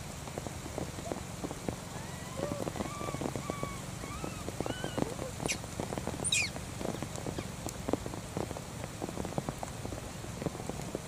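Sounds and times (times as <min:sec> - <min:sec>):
rain pattering on the ground: 0:00.0 - 0:11.0
baby monkey cooing: 0:02.0 - 0:05.6
baby monkey shrill squeals: 0:02.0 - 0:05.6, 0:06.2 - 0:06.5.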